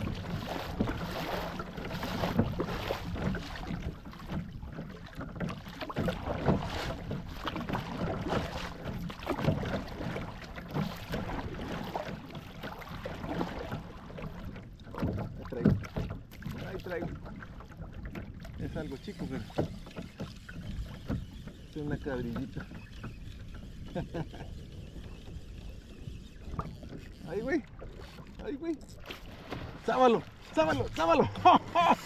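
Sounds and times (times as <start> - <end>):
wind rumbling on microphone: 0.0 - 4.8
kayak paddle splashing: 0.0 - 32.0
water lapping against hull: 0.0 - 32.0.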